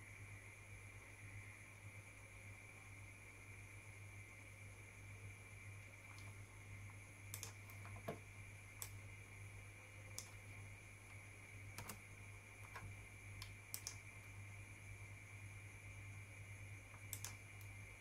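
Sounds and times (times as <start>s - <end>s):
faint low hum: 0.0s - 18.0s
mouse and keyboard clicks: 7.3s - 8.2s, 10.1s - 10.5s, 11.7s - 14.1s, 17.0s - 17.8s.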